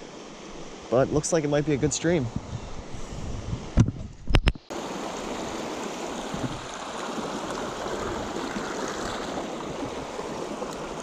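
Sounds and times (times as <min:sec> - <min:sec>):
creek water rushing: 0:04.7 - 0:11.0.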